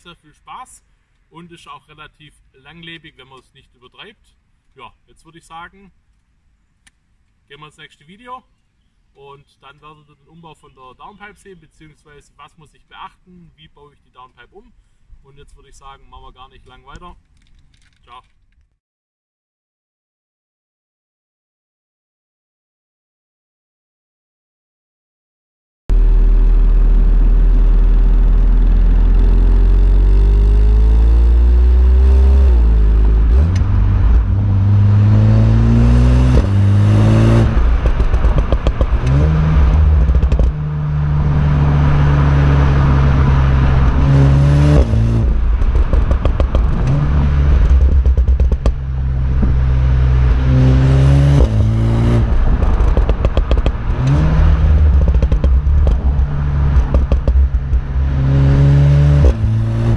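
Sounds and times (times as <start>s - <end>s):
car engine revving: 25.9s - 59.9s
exhaust crackles and pops: 25.9s - 59.9s.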